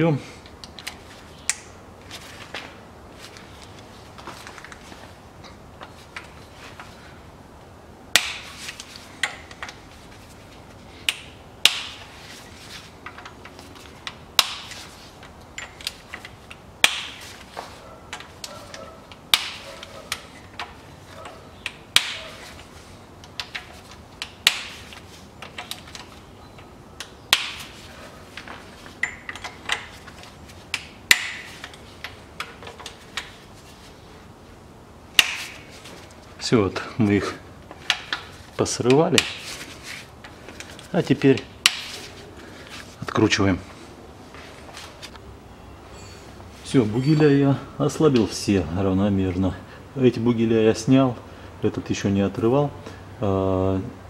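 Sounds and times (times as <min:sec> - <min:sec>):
bolts cracking loose: 0:02.5 - 0:04.9, 0:08.1 - 0:09.9, 0:11.0 - 0:12.2, 0:13.0 - 0:33.4, 0:35.1 - 0:36.9, 0:37.6 - 0:42.2.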